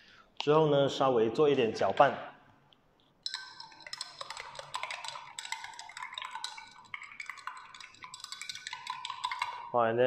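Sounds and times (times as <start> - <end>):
spoon clinking against glass: 3.2 - 9.8.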